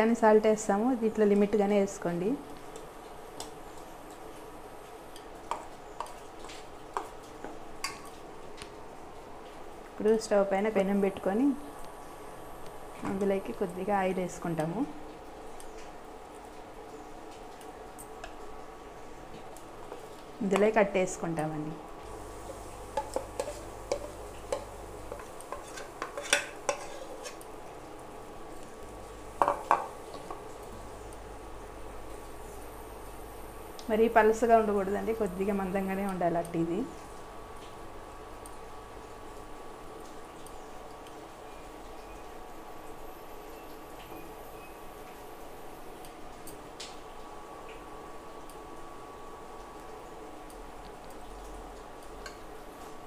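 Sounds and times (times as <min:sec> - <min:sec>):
metal clinking and scraping on pan: 0:23.0 - 0:27.4
spoon stirring thick batter: 0:23.0 - 0:27.4.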